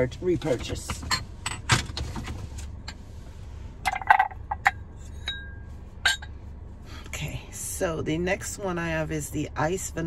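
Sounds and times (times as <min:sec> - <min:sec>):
low steady hum: 0:00.0 - 0:10.0
glass jars clinking: 0:03.9 - 0:06.3.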